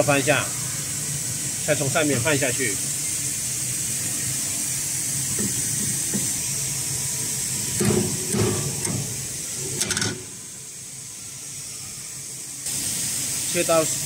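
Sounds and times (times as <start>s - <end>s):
background hiss and hum: 0.0s - 14.0s
metal knocking and scraping: 5.4s - 6.4s, 7.6s - 10.4s.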